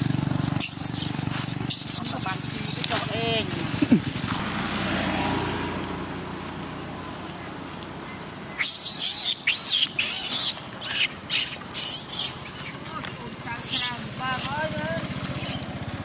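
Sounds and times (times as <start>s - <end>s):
monkeys screaming: 0.6s - 3.0s, 8.5s - 15.7s.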